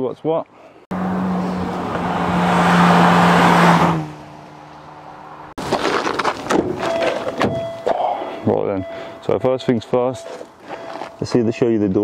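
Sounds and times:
car driving past: 0:00.9 - 0:05.6
tyre noise: 0:05.6 - 0:08.2.

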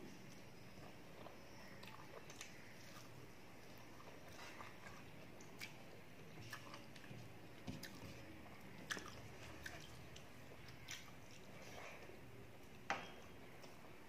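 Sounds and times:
person chewing: 0:00.8 - 0:11.7.

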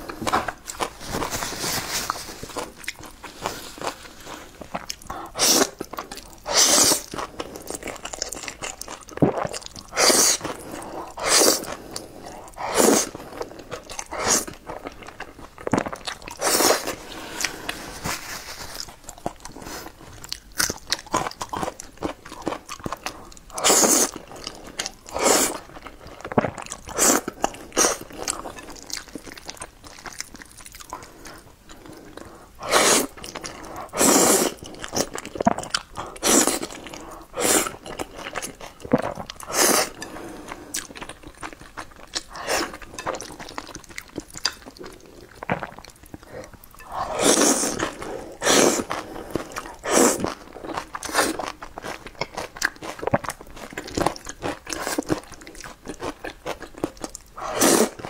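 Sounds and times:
wet chewing and mouth clicks: 0:02.5 - 0:17.9, 0:18.8 - 0:58.0
slurping noodles: 0:03.3 - 0:05.8, 0:06.4 - 0:08.3, 0:09.2 - 0:14.6, 0:15.7 - 0:18.9, 0:23.6 - 0:25.7, 0:32.6 - 0:35.1, 0:36.1 - 0:38.2, 0:38.9 - 0:40.8, 0:46.8 - 0:51.4, 0:57.4 - 0:58.0.

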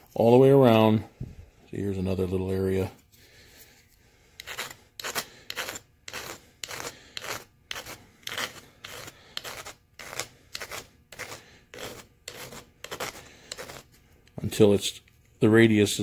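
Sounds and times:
hand file rasping on metal: 0:04.4 - 0:13.9.

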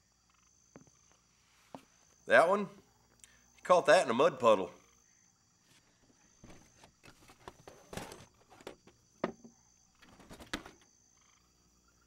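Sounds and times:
light knocks: 0:08.0 - 0:10.8.

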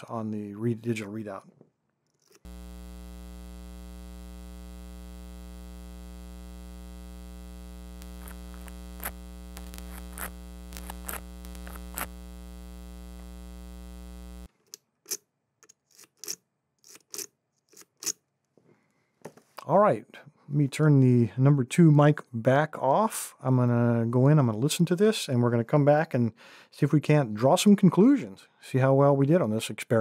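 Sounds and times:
electrical hum and buzz: 0:02.4 - 0:14.5.

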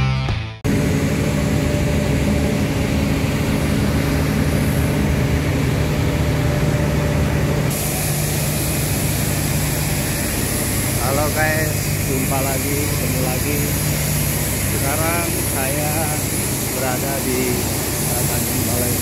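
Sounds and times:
heavy machinery humming: 0:00.6 - 0:19.0
hiss: 0:07.7 - 0:19.0.

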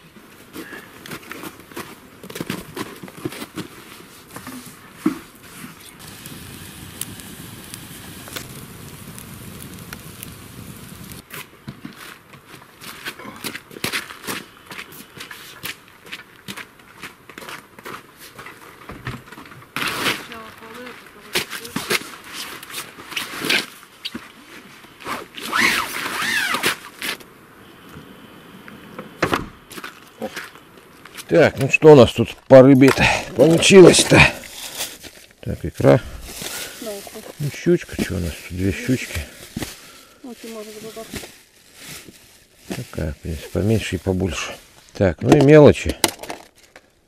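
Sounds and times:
campfire crackling: 0:00.0 - 0:47.0
burning logs popping: 0:00.2 - 0:47.0
squeaky rubbing of a pad: 0:25.0 - 0:27.0
rustling of bags: 0:29.6 - 0:47.0.

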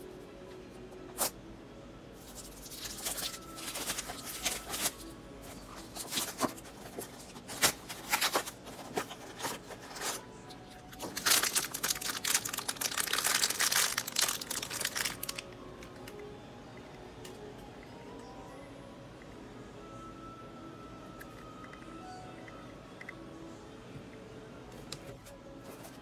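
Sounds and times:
foil bag crinkling and ripping: 0:02.2 - 0:05.1, 0:05.8 - 0:10.2, 0:11.0 - 0:15.4.

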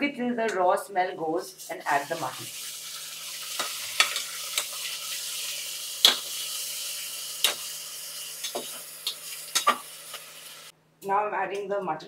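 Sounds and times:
onions sizzling in hot oil: 0:01.6 - 0:10.7.

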